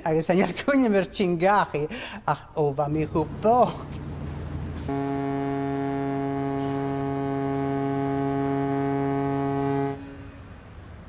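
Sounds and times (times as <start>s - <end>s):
ship's horn blast: 3.3s - 10.8s.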